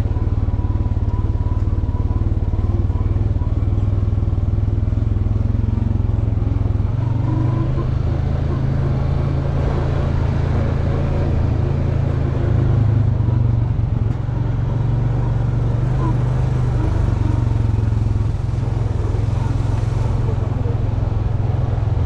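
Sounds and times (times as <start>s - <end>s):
quad bike engine running: 0.0s - 22.0s.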